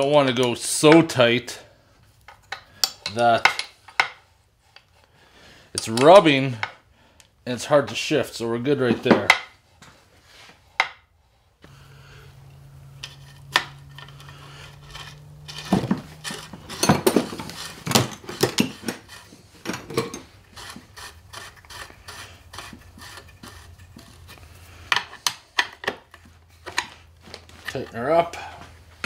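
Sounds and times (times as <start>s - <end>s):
low steady hum: 8.4s - 29.0s
metal tools clinking on workbench: 13.0s - 20.4s.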